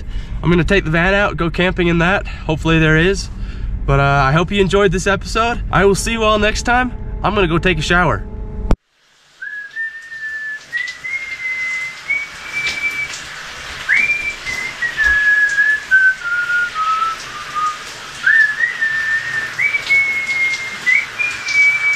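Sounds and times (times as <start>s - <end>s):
person whistling a tune: 9.4s - 13.1s, 13.9s - 21.9s.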